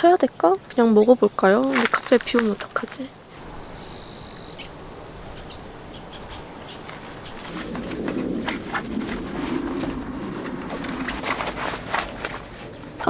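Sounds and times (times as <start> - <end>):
insects chorus: 0.0 - 13.0
canvas flap rustling: 6.9 - 13.0.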